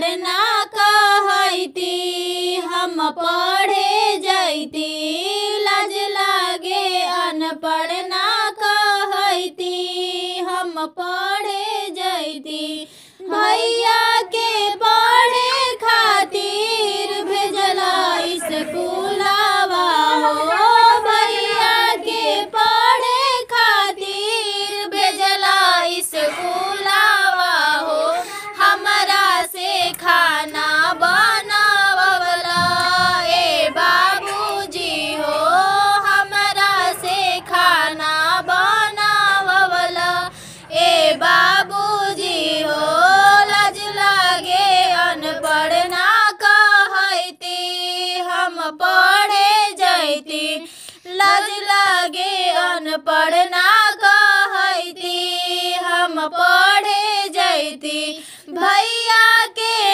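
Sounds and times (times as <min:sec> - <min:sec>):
high solo voice singing: 0:13.2 - 0:46.0.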